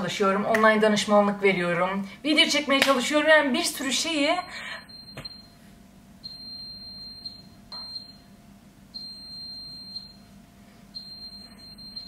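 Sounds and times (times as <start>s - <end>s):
electronic alarm beeping: 4.4s - 5.6s, 6.2s - 8.2s, 9.0s - 10.2s, 10.9s - 12.0s.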